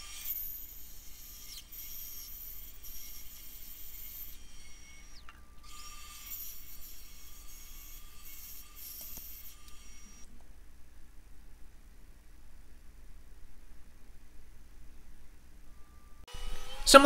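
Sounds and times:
bandsaw whining: 0.0 - 10.3, 16.3 - 17.0.

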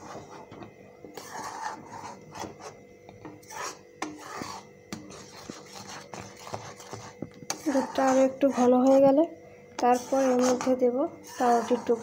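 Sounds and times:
metal spoon scraping metal pan: 1.2 - 2.8, 3.4 - 9.2, 9.8 - 12.0.

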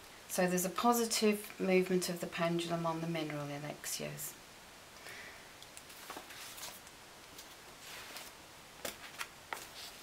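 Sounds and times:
paper rustling: 5.9 - 10.0.

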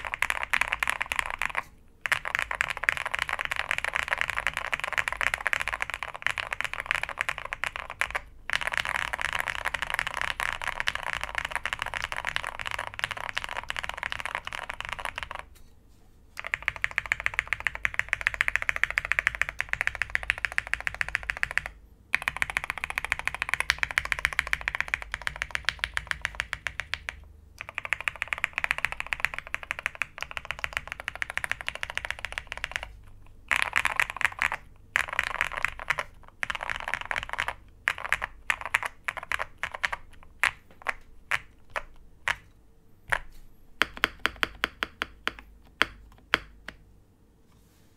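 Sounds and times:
mechanical keyboard typing: 0.0 - 15.5, 16.4 - 42.5, 43.1 - 46.8.

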